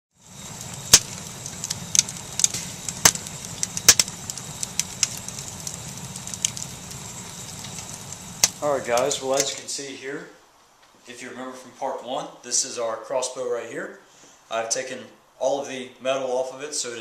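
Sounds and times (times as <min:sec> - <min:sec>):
fire crackling and popping: 0:00.1 - 0:09.9
wood fire burning: 0:00.1 - 0:10.0.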